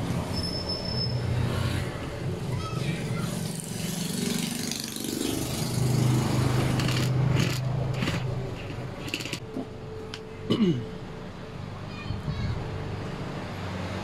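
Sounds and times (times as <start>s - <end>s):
sharp clicks and rattles: 6.4s - 9.4s.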